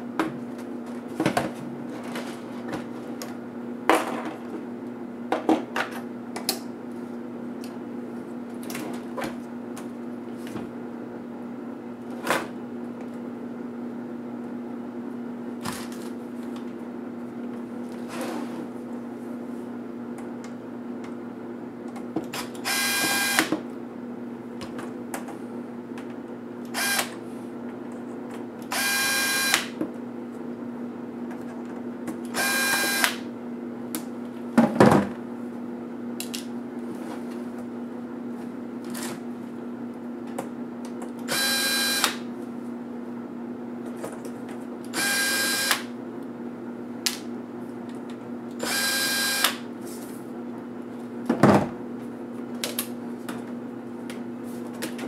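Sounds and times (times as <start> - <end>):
electric screwdriver whirring: 22.6 - 23.5, 26.7 - 27.1, 28.7 - 29.7, 32.3 - 33.2, 41.3 - 42.2, 44.9 - 45.9, 48.6 - 49.6.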